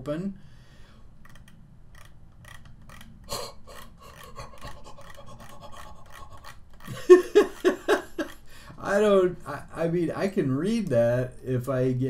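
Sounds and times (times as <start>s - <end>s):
steady low hum: 0.0s - 12.0s
mouse scroll wheel clicking: 1.2s - 7.0s.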